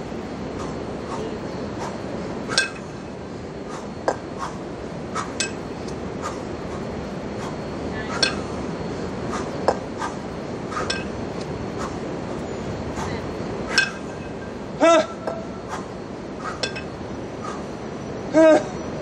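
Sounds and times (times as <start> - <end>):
steady background noise: 0.0 - 19.0
kettlebells clinking: 2.5 - 3.1, 5.4 - 5.8, 8.2 - 8.6, 10.8 - 11.3, 13.7 - 14.4, 16.6 - 17.0.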